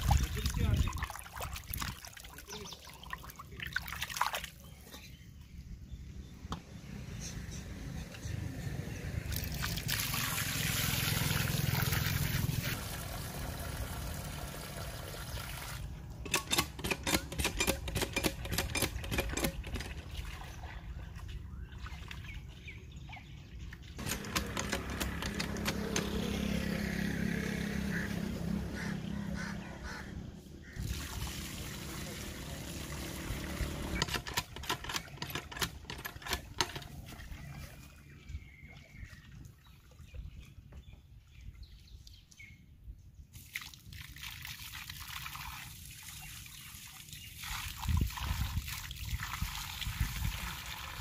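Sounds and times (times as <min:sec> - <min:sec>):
chicken being washed by hand: 0:30.7 - 0:33.8, 0:43.4 - 0:51.0.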